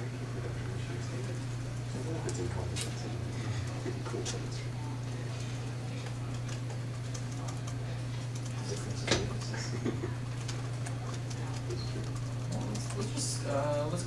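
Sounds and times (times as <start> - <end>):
steady low hum: 0.0 - 14.0
laptop keyboard typing: 5.4 - 13.4.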